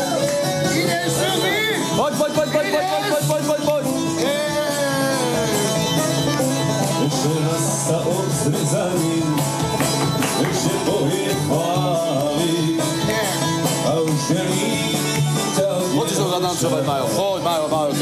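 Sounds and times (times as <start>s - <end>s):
guitar: 0.0s - 18.0s
man singing: 0.0s - 18.0s
steady bass: 0.0s - 18.0s.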